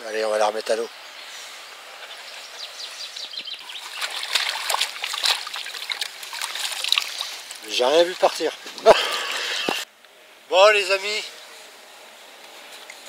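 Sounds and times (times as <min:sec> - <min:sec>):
water splashing and dripping: 0:03.4 - 0:09.8.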